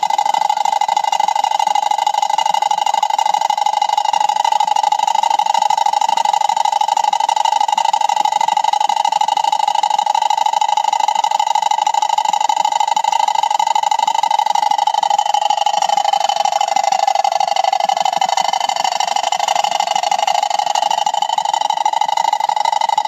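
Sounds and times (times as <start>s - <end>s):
water wheel buzzing rattle: 0.0s - 23.0s.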